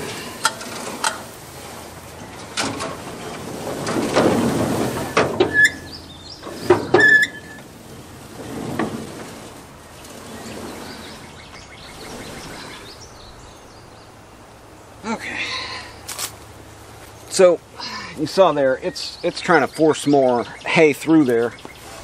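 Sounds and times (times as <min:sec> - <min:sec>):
hay baler running: 0:00.0 - 0:12.9
baler plunger clanking: 0:02.4 - 0:07.7
baler squeal: 0:05.4 - 0:06.0, 0:06.6 - 0:07.6.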